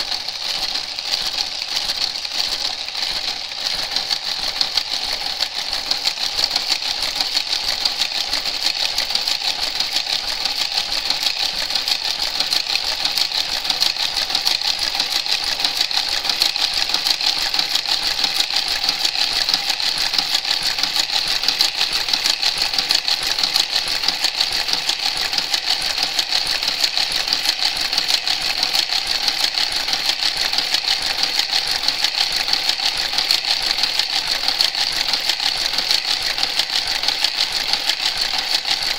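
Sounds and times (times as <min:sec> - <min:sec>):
knitting machine carriage clicking: 0:00.0 - 0:38.9.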